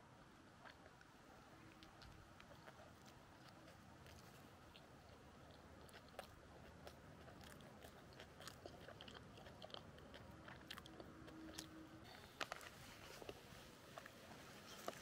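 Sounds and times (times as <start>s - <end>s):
faint chewing of a sandwich: 0.4s - 15.0s
crisp biting and crunching: 1.7s - 13.4s.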